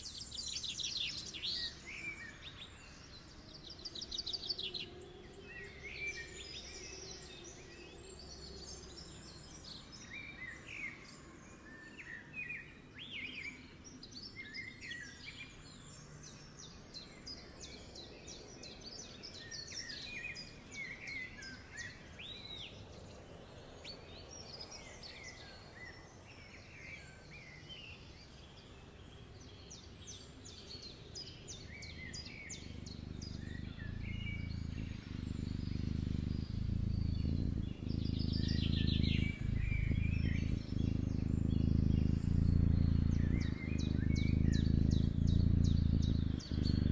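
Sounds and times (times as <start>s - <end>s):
small birds chirping: 0.0s - 46.9s
low background rumble: 31.5s - 46.9s.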